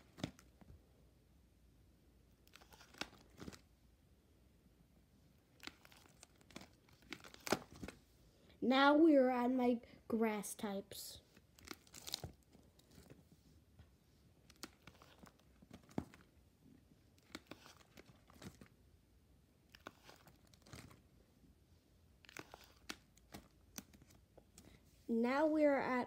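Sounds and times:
plastic pages crinkling: 0.0s - 0.6s, 2.4s - 3.7s, 5.4s - 8.0s, 11.3s - 13.2s, 14.4s - 16.3s, 17.1s - 18.8s, 19.6s - 21.1s, 22.2s - 24.7s.

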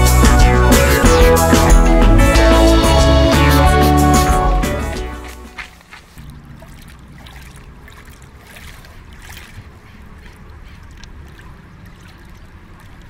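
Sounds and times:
footsteps crunching on gravel: 5.2s - 6.3s.

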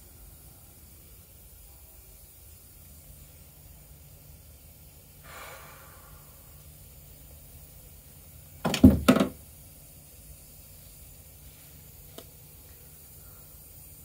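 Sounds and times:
person breathing heavily: 5.2s - 6.6s.

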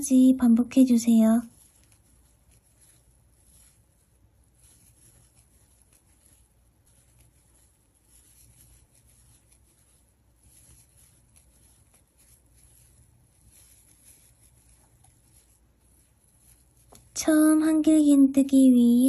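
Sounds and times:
yarn rustling with crochet hook: 0.0s - 19.0s.

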